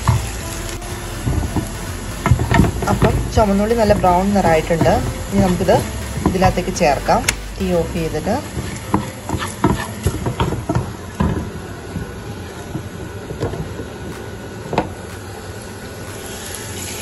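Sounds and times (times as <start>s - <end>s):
food sizzling in hot oil: 16.2s - 17.0s.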